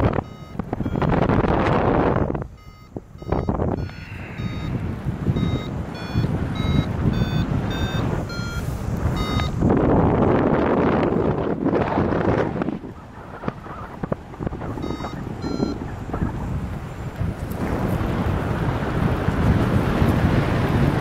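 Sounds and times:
variometer beeping: 0:00.0 - 0:11.7, 0:13.0 - 0:17.3
wind on microphone: 0:00.0 - 0:21.0.

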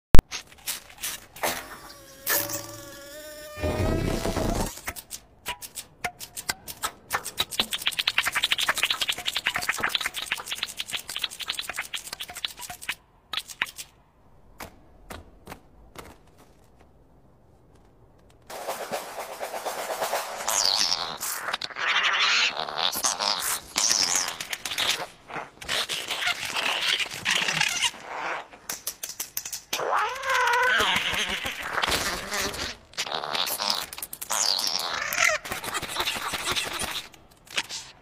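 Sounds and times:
rapid insect clicking and scratching: 0:05.6 - 0:13.9, 0:20.5 - 0:37.9.

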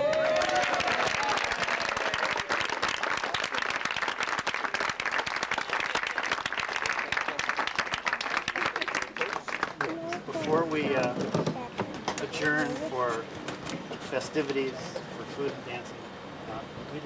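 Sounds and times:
crowd applauding: 0:00.0 - 0:11.1.

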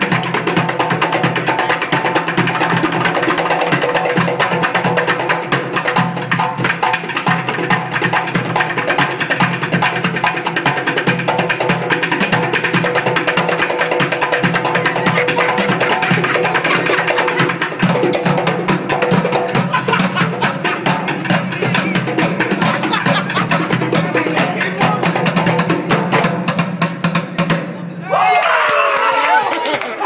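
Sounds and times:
djembe played by hand: 0:00.0 - 0:27.7.

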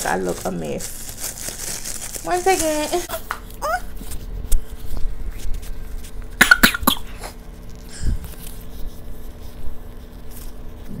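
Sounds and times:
faint steady hum: 0:00.0 - 0:11.0
person coughing: 0:06.4 - 0:07.3.

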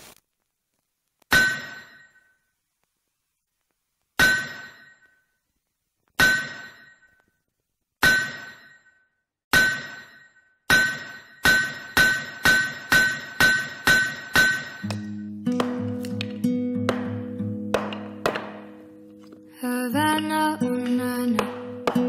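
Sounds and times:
hammer striking anvil: 0:01.3 - 0:02.3, 0:04.2 - 0:05.2, 0:06.2 - 0:07.2, 0:08.0 - 0:19.3, 0:20.2 - 0:22.0.

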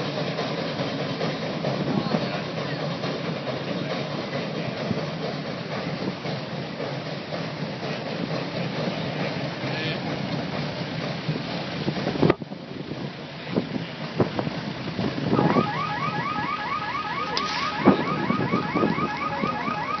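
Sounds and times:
steady running noise: 0:00.0 - 0:20.0
alarm chirping: 0:15.4 - 0:20.0.

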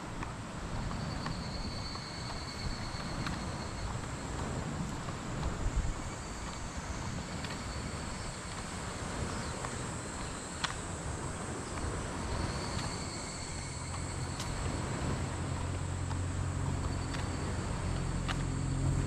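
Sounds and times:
insects chirping: 0:00.0 - 0:19.0
faint clicks: 0:08.5 - 0:18.6
low rumble: 0:11.1 - 0:19.0.

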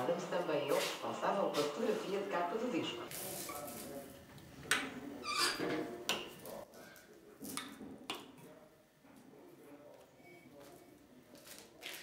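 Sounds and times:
scraping squeak: 0:05.2 - 0:05.8.

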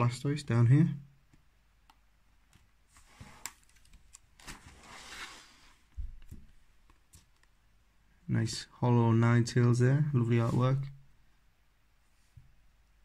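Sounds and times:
plastic pages rustling: 0:02.5 - 0:05.5.

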